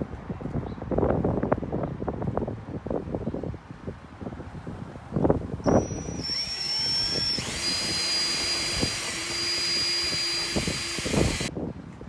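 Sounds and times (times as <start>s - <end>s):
power tool motor whining: 5.6s - 11.5s.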